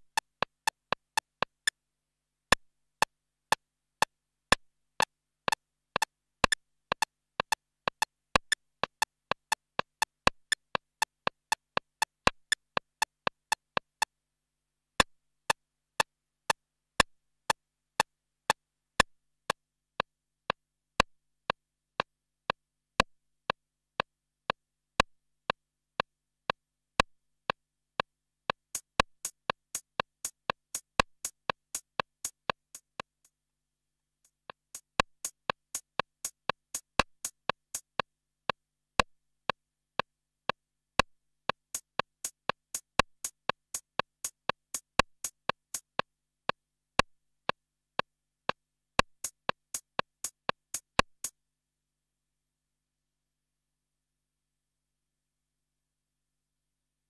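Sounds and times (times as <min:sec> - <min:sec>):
drum machine clicky hits: 0:49.0 - 0:51.3.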